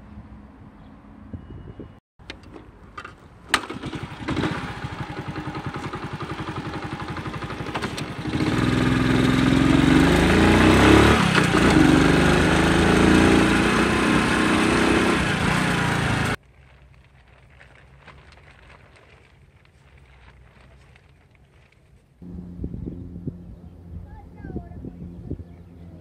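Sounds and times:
moped engine idling and revving: 0:03.5 - 0:16.4, 0:22.2 - 0:26.0.

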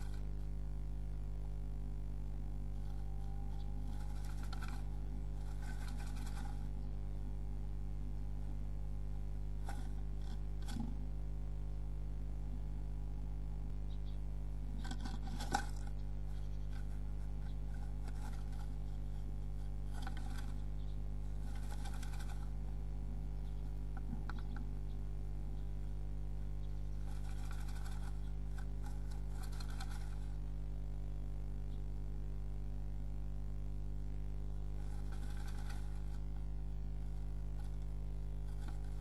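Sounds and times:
low electrical hum: 0:00.0 - 0:39.0
bird scratching in nest box: 0:02.7 - 0:06.9, 0:09.6 - 0:11.0, 0:14.7 - 0:24.7, 0:26.6 - 0:30.5, 0:34.6 - 0:39.0.

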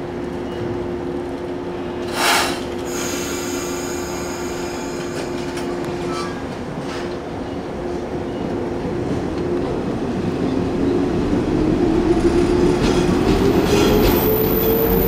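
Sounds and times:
electric train hum: 0:00.0 - 0:15.0
air hiss: 0:02.1 - 0:05.6.

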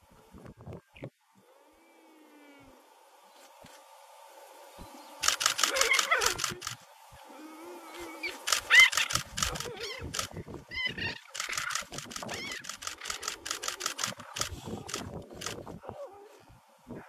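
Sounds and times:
camera shutter clicking: 0:05.2 - 0:06.8, 0:08.4 - 0:10.4, 0:11.2 - 0:15.6.

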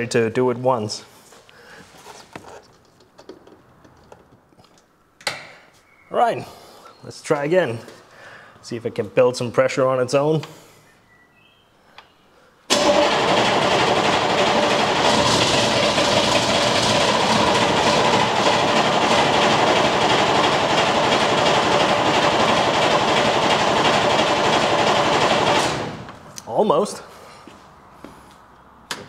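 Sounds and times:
diesel engine starter cranking: 0:12.7 - 0:26.2.

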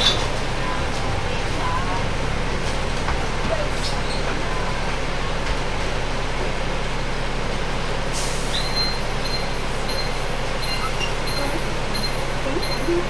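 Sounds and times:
bus engine running: 0:00.0 - 0:13.0
air brake hiss: 0:08.1 - 0:08.6.

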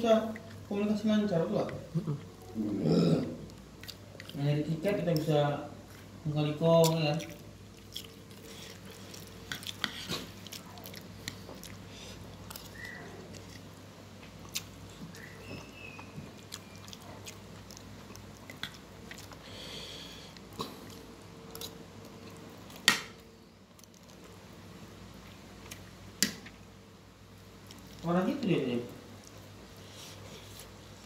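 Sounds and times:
chewing: 0:01.6 - 0:06.1, 0:06.8 - 0:19.7, 0:20.3 - 0:22.8, 0:23.7 - 0:24.4, 0:27.6 - 0:28.1.

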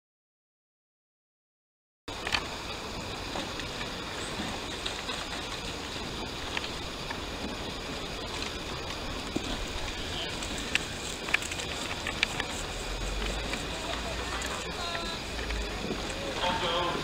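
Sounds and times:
steady outdoor hiss: 0:02.1 - 0:17.0
faint clicks: 0:08.2 - 0:16.3.

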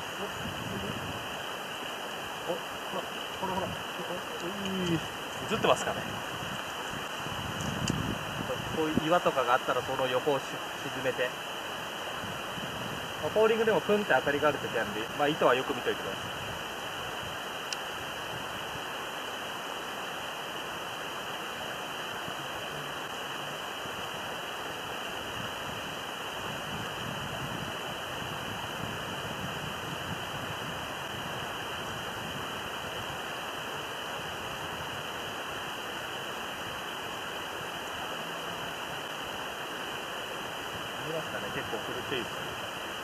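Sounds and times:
steady rushing noise: 0:00.0 - 0:43.0.

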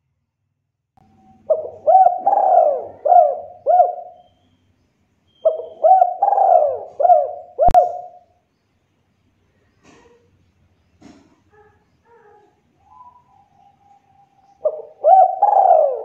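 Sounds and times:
dove cooing: 0:01.2 - 0:04.3, 0:05.4 - 0:08.2, 0:11.5 - 0:16.0.

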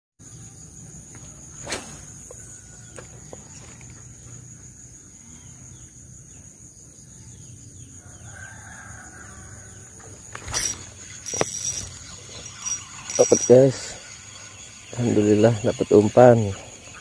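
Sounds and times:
high drone of insects: 0:00.2 - 0:17.0
rooster crowing: 0:08.0 - 0:10.0.

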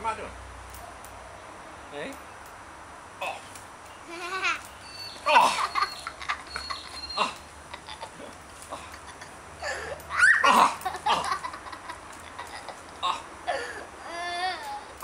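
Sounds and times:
young child laughing: 0:04.1 - 0:14.8.

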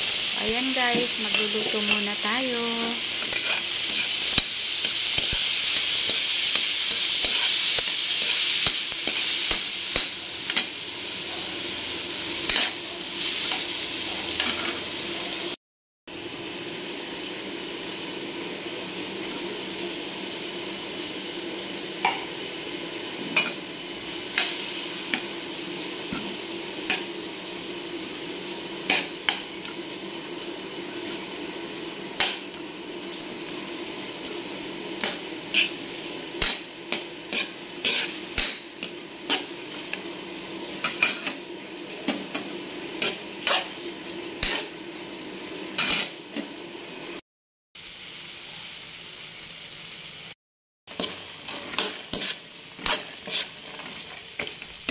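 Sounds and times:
spatula scraping wok: 0:00.0 - 0:15.5, 0:23.1 - 0:30.1, 0:30.7 - 0:46.5, 0:50.9 - 0:54.9
vegetables sizzling in oil: 0:00.0 - 0:47.2, 0:47.8 - 0:54.9.

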